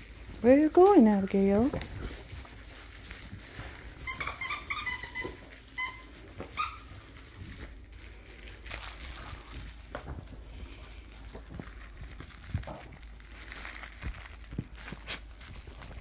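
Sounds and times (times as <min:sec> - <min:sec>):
squeaky toy squeaking: 0:04.0 - 0:06.9.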